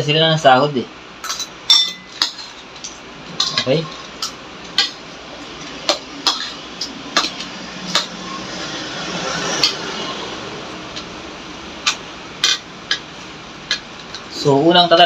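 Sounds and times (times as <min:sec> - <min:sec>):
cutlery clinking on ceramic plate: 0:01.2 - 0:05.0, 0:06.2 - 0:06.6
soft rushing noise: 0:05.0 - 0:14.7.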